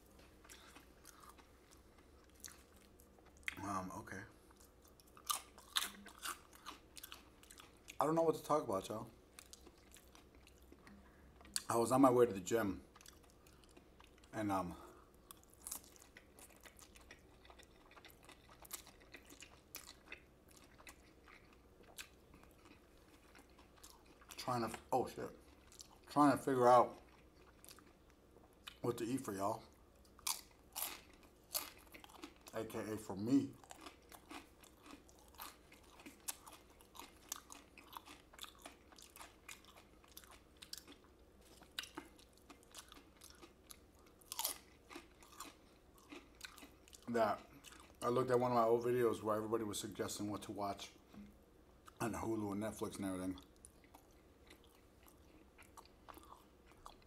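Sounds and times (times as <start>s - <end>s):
chewing noodles: 0.0s - 3.6s, 4.4s - 8.0s, 9.3s - 11.7s, 12.9s - 14.4s, 15.0s - 26.2s, 26.9s - 28.8s, 30.0s - 32.6s, 33.3s - 48.2s, 53.3s - 57.0s.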